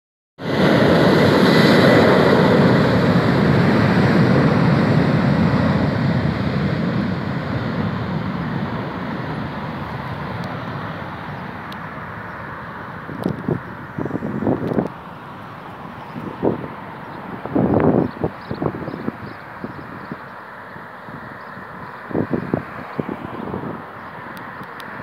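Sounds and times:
high engine whine: 0.4 - 25.0
jet engines at takeoff: 0.4 - 25.0.

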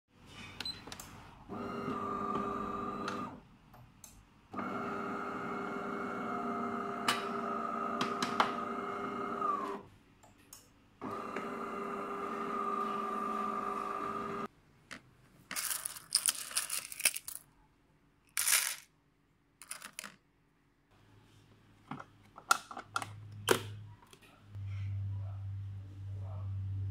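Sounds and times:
espresso machine humming: 11.1 - 14.5.

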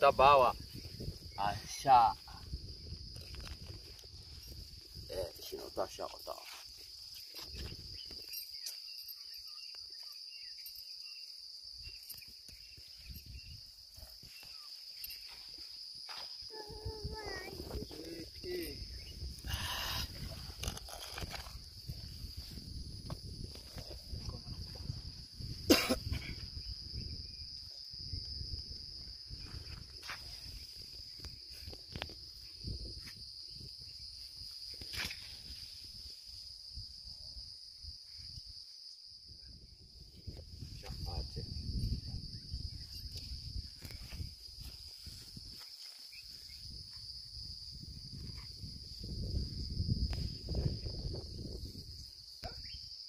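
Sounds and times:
insects droning: 0.0 - 53.0.

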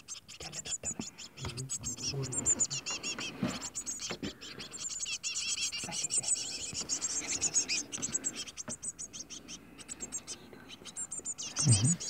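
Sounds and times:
baby birds chirping: 0.0 - 12.0
faint rustles and scrapes: 1.9 - 4.8.

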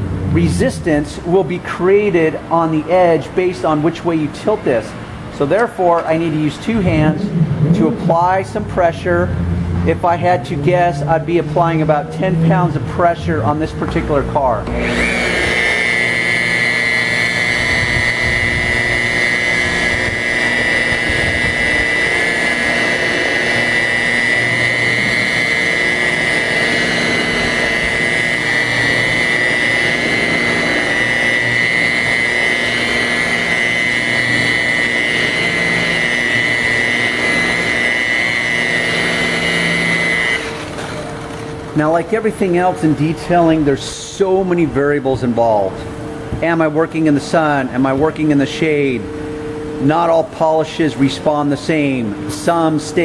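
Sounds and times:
rotary polisher motor whine: 4.8 - 41.8.

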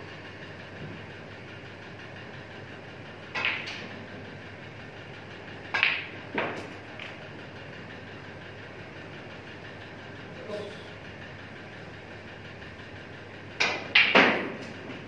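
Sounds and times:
room noise hum: 0.0 - 15.0
snooker balls clicking: 3.3 - 4.0, 5.5 - 7.3, 13.6 - 15.0.

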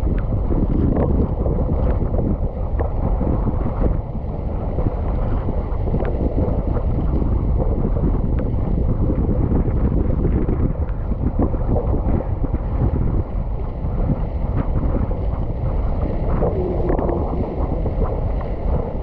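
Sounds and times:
wind buffeting microphone: 0.0 - 19.0
water rushing and splashing: 14.4 - 19.0.

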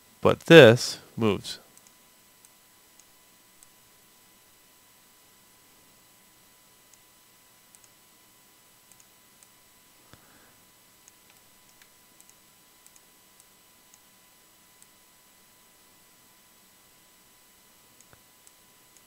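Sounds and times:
computer mouse clicks: 7.7 - 8.0, 8.9 - 9.6, 11.0 - 14.1.

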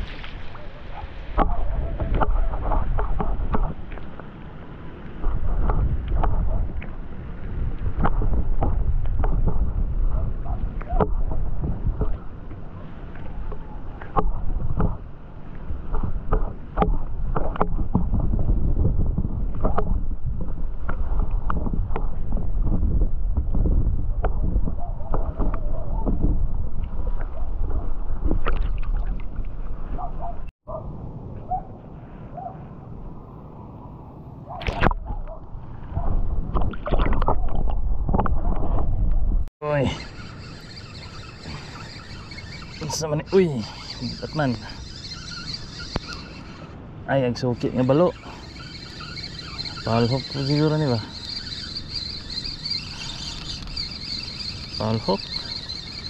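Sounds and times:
water washing around boat: 0.0 - 22.6
water sloshing around boat: 0.0 - 22.7, 24.4 - 30.5, 34.5 - 39.0, 39.6 - 56.0
wind rumbling on microphone: 0.0 - 56.0
sharp knocks and clicks: 15.9 - 18.2.

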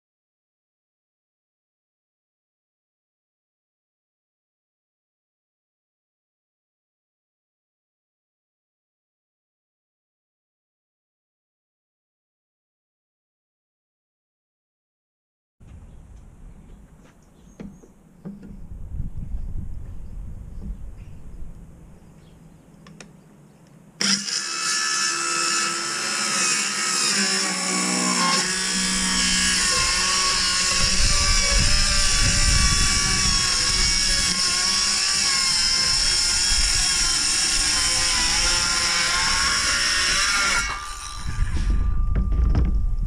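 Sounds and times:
circular saw cutting plywood: 24.0 - 42.3.

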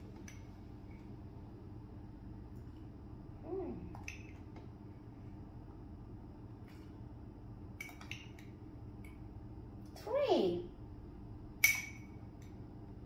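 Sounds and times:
metal spoon clinking on glass: 11.6 - 12.2.

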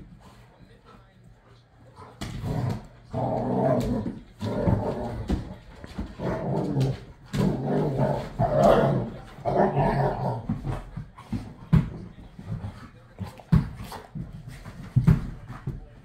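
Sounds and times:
dogs growling: 2.0 - 11.4.

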